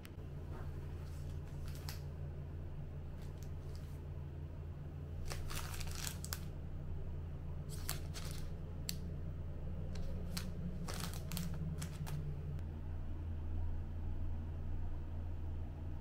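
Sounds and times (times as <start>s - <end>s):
steady low hum: 0.0s - 16.0s
small objects rustling and clicking: 1.0s - 2.0s, 5.2s - 6.5s, 7.7s - 9.0s, 10.0s - 12.2s.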